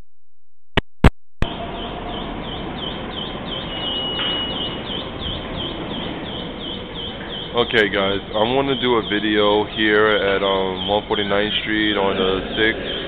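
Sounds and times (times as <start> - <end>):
subway station hum and hiss: 11.7 - 13.0.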